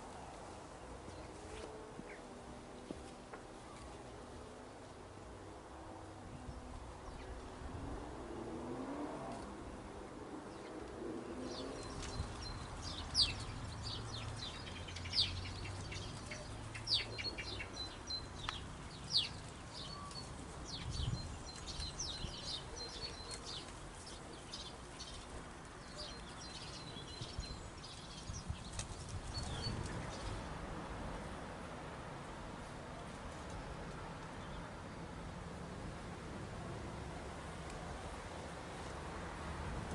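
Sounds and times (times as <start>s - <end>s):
small birds chirping: 9.6s - 30.6s.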